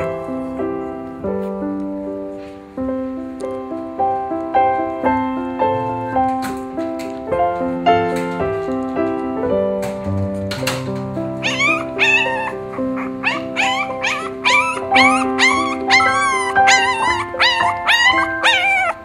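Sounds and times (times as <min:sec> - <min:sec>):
piano music: 0:00.0 - 0:19.0
puppy whining and squealing: 0:11.4 - 0:19.0.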